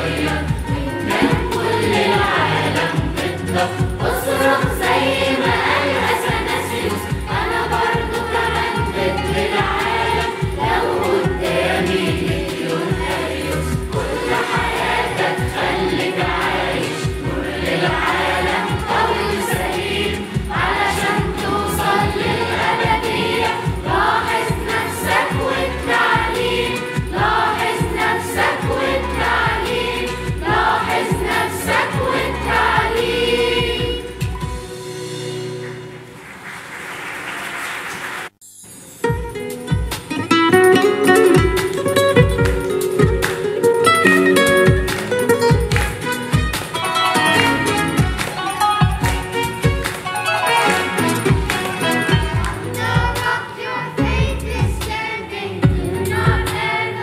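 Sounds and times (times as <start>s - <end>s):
children's choir singing: 0.0s - 34.6s, 46.8s - 57.0s
backing track with steady beat: 0.0s - 35.7s, 39.0s - 56.9s.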